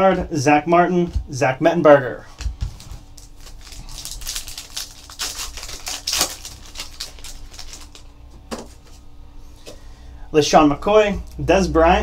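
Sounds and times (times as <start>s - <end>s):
foil wrapper crinkling: 2.8s - 8.2s.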